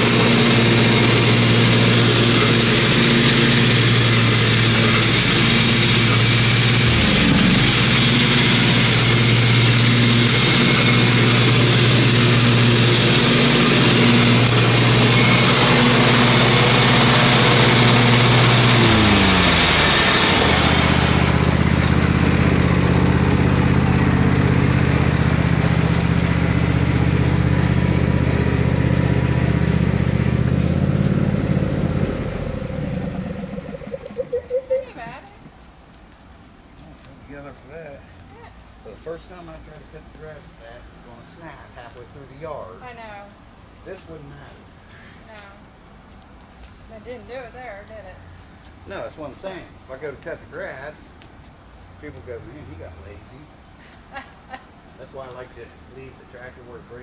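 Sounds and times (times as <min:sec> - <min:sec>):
lawn tractor engine running: 0:00.0 - 0:35.2.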